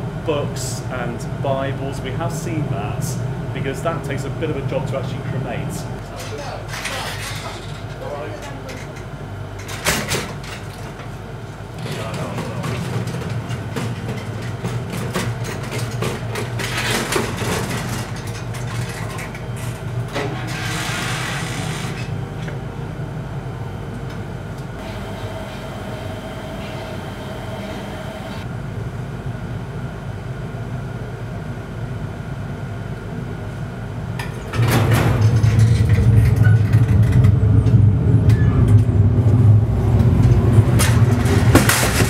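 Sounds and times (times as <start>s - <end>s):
low machinery hum: 0.0s - 42.0s
trolley clicks and knocks: 11.8s - 21.1s, 39.9s - 42.0s.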